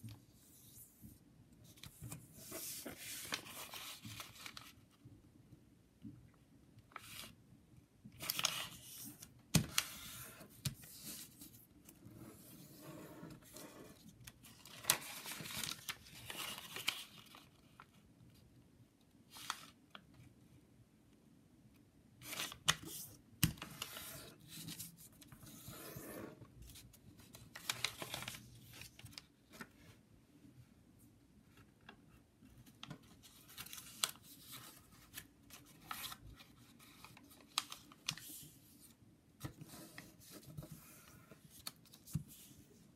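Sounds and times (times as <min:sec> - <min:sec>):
paper rustling: 0:01.7 - 0:04.8, 0:26.7 - 0:29.8.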